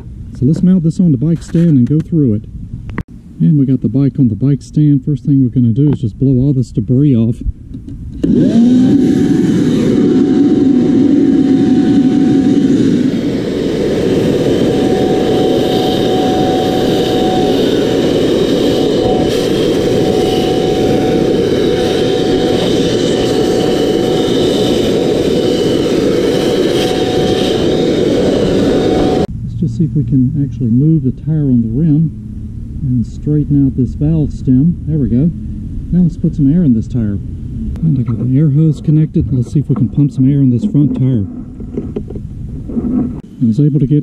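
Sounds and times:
rush of air: 7.5s - 29.6s, 32.1s - 37.9s
leaf blower whining: 8.1s - 29.3s.

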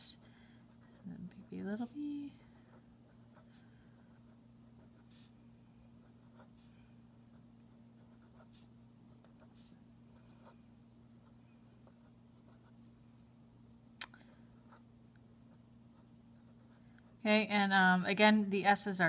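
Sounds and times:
steady low hum: 0.0s - 19.0s
marker scratching on paper: 4.1s - 5.3s, 8.0s - 10.6s.

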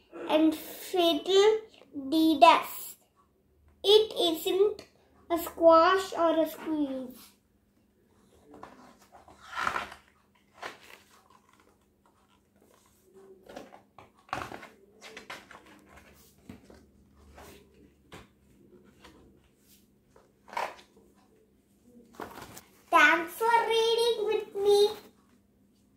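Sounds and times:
book pages rustling: 8.1s - 23.3s.

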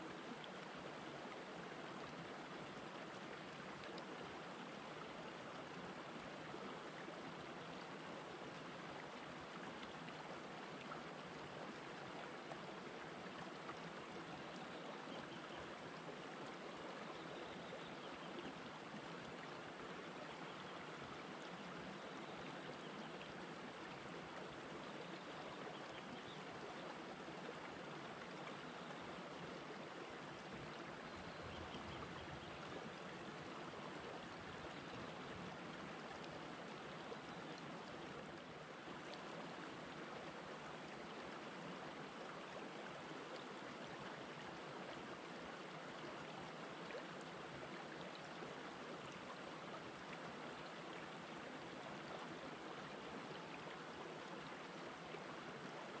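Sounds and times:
stream flowing over rocks: 0.0s - 56.0s.

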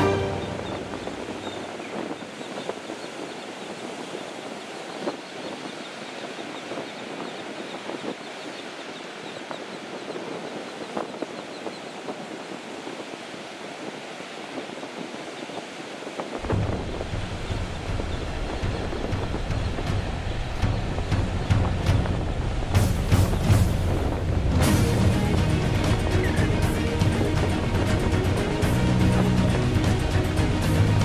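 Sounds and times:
sea birds calling: 0.0s - 22.1s, 22.8s - 30.8s
surf washing on beach: 0.0s - 31.0s
wind rumble on microphone: 0.0s - 31.0s.

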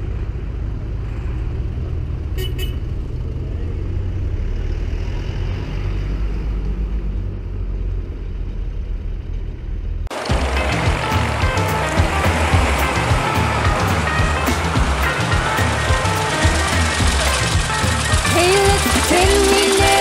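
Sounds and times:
tractor engines rumbling: 0.0s - 20.0s
background music: 10.1s - 20.0s
short horn toots: 10.2s - 20.0s.

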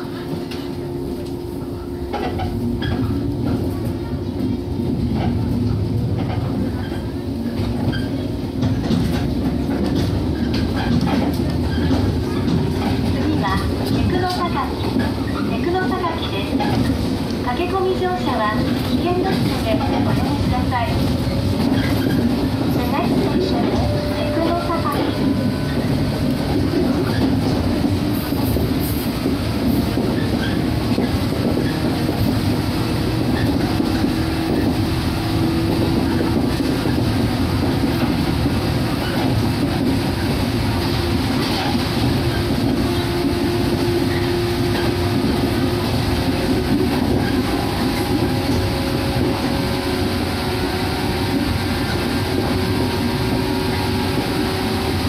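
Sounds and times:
train wheels clattering on rails: 0.0s - 55.0s
train traction motor drone: 18.0s - 55.0s.

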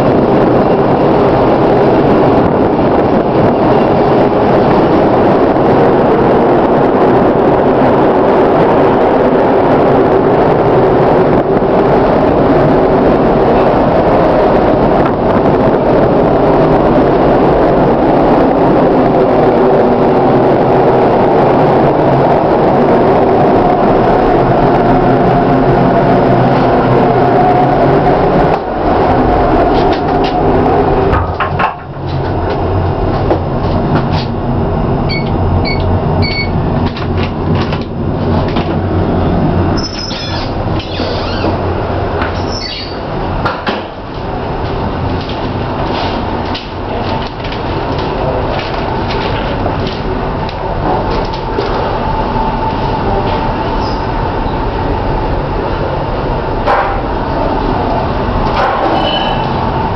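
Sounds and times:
wind rushing on ship deck: 0.0s - 59.9s
machinery hum: 8.8s - 59.9s
short high beeps: 35.1s - 36.5s.

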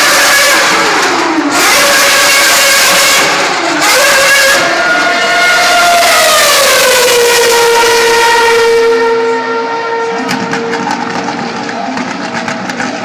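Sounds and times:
race car engine screaming past: 0.0s - 13.0s.

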